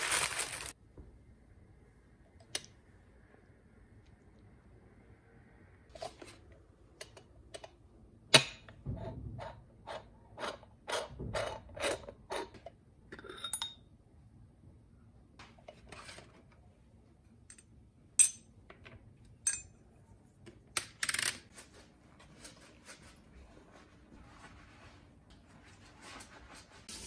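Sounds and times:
metal coffee maker parts clinking: 13.1 - 13.8.

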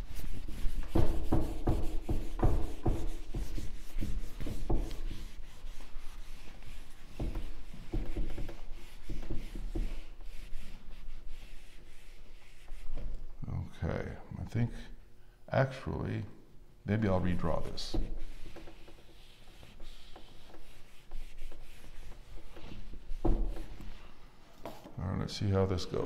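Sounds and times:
eraser rubbing whiteboard: 0.0 - 13.2, 17.4 - 24.8.

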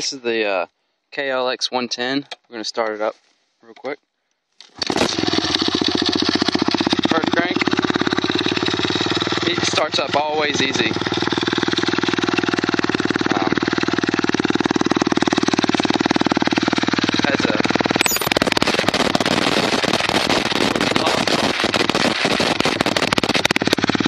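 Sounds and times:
motorcycle engine idling: 5.1 - 24.0
exhaust pulses: 17.2 - 24.0.

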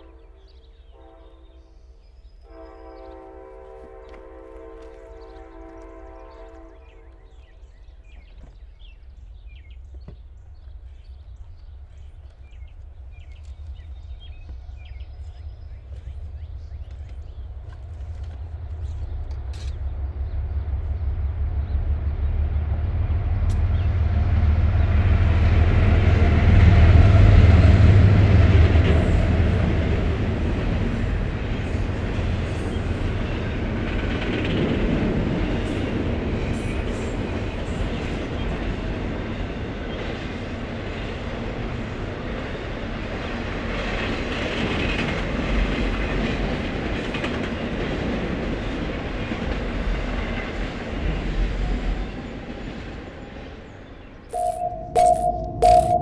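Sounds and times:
diesel locomotive engine rumble: 0.0 - 56.0.

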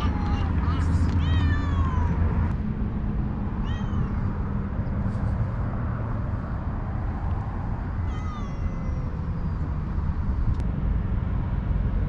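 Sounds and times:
steady low rumble: 0.0 - 12.0
cats meowing: 3.6 - 4.4, 8.0 - 9.1.

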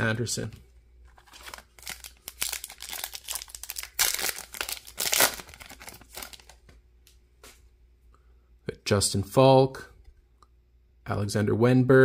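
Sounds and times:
foil wrapper crinkling and tearing: 1.1 - 6.7.

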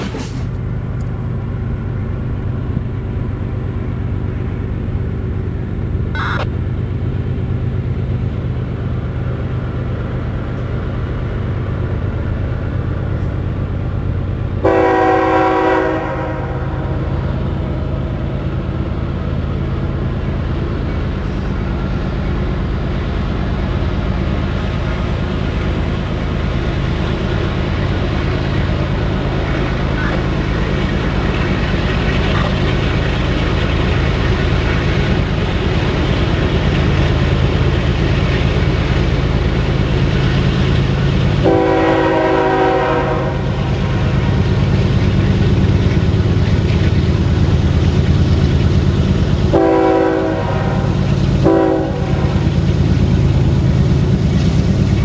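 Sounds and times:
diesel locomotive engine drone: 0.0 - 55.0
locomotive air horn blast: 14.6 - 17.2, 41.4 - 43.7, 49.5 - 52.4.

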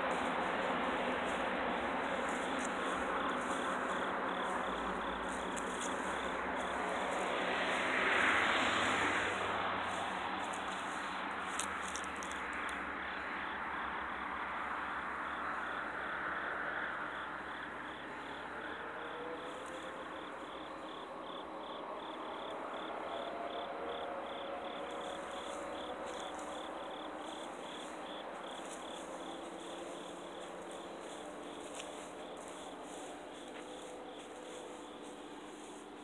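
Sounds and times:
broad rushing noise: 0.0 - 12.1
crickets chirping: 0.0 - 36.0.

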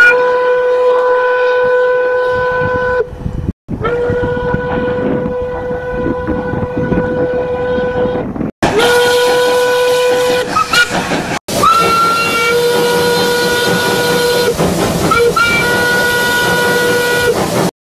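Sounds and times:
steam locomotive whistle: 0.0 - 3.1, 3.8 - 17.6
steam hissing: 8.7 - 17.7.

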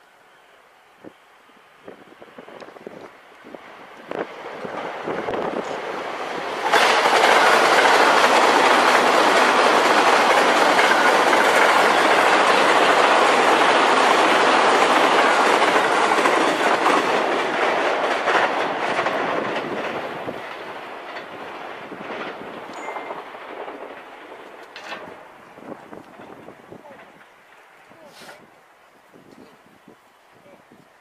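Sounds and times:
train wheels clattering over rail joints: 4.1 - 27.8.

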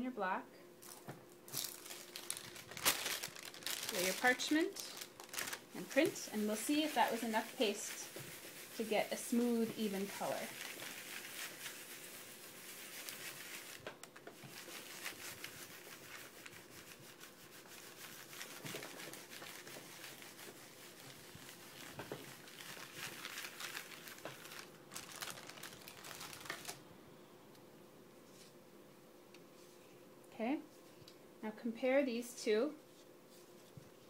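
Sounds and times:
baren scratching over paper: 5.9 - 13.8.

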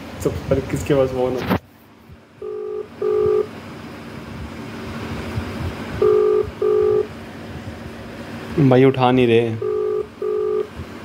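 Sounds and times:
phone ringback tone beeps: 2.4 - 3.5, 6.0 - 7.1, 9.6 - 10.7.

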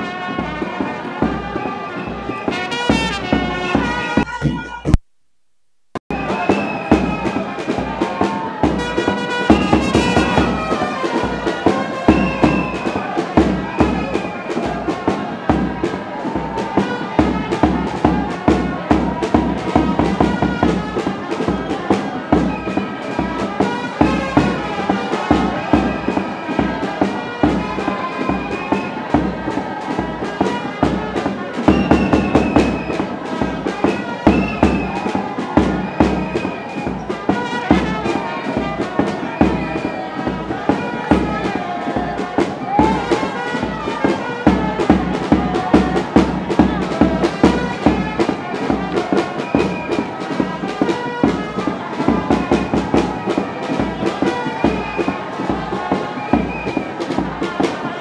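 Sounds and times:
music with a steady beat: 0.0 - 5.1, 6.1 - 58.0.

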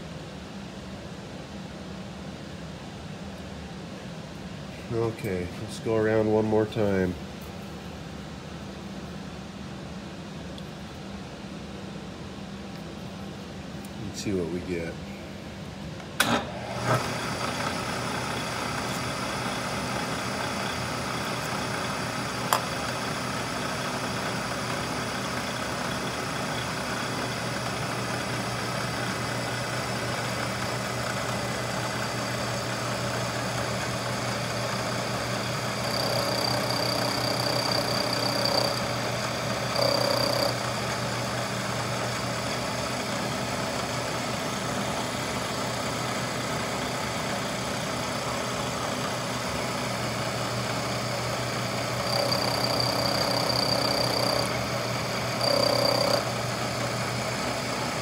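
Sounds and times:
milling machine running: 16.2 - 58.0
cutter whine biting metal: 34.4 - 40.8, 51.8 - 56.4.

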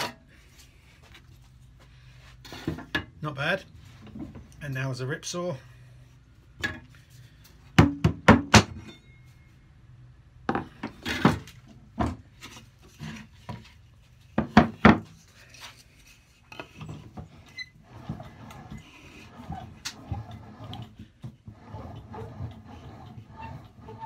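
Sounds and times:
wood rubbing and clunks: 16.5 - 24.0.

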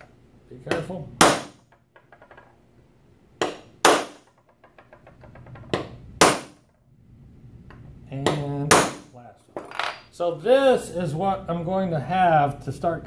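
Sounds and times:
hammer striking punch on metal: 0.7 - 1.6, 3.4 - 4.3, 5.8 - 6.6, 8.3 - 9.1.

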